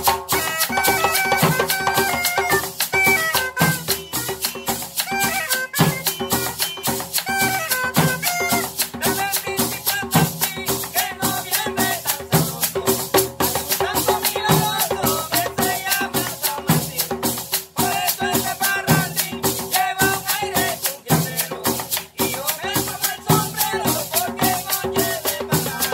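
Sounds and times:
cane flute melody: 0.0 - 10.8
hand drums: 0.0 - 25.9
metal shaker rhythm: 0.0 - 25.9.

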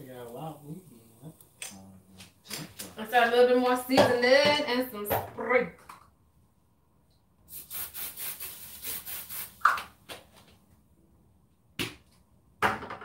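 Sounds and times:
seasoning shaker rasping: 7.5 - 9.7.

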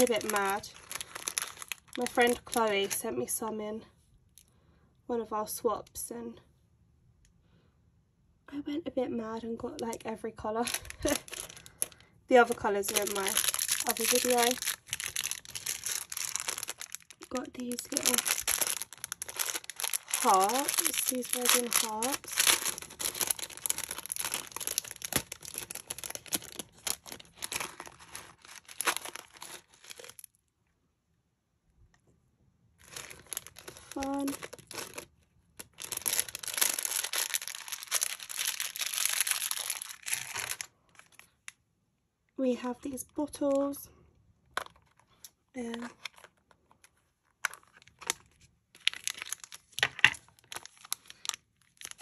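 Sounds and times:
plastic bag crinkling: 0.0 - 3.2, 10.6 - 30.4, 32.8 - 41.5, 45.7 - 52.0.

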